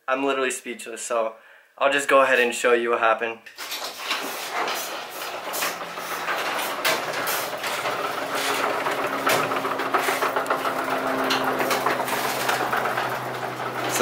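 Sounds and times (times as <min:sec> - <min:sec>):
footsteps: 0:03.6 - 0:14.0.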